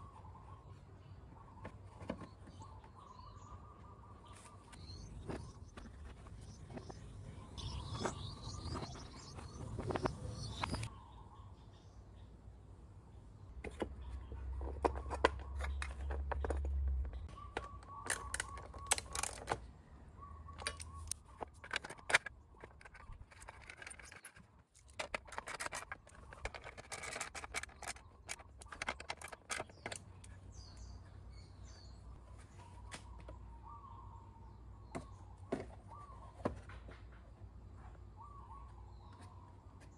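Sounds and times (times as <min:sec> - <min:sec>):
birds chirping: 0:00.0 - 0:39.9.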